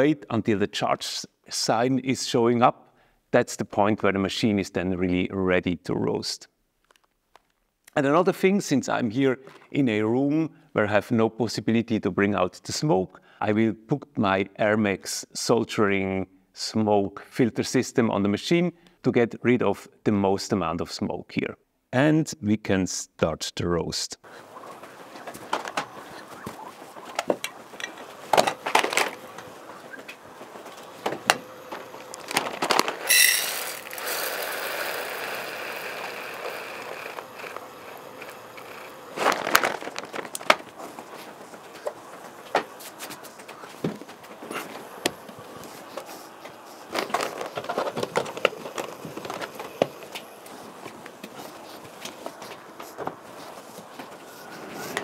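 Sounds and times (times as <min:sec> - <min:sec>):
plastic bag crinkling: 0:28.1 - 0:29.6, 0:30.4 - 0:43.0, 0:45.5 - 0:52.4
coffee beans pouring into cup: 0:32.1 - 0:40.4.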